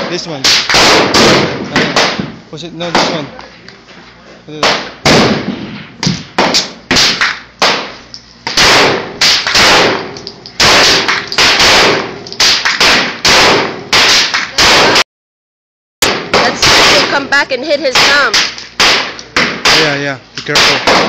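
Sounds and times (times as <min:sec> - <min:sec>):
pistol gunshots: 0:00.0 - 0:03.2, 0:04.6 - 0:15.0, 0:16.0 - 0:17.3, 0:17.9 - 0:21.0.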